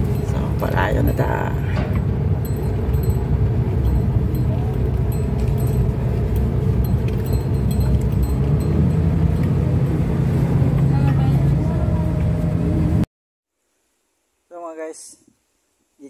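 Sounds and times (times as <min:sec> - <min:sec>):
van engine and road rumble: 0:00.0 - 0:13.1.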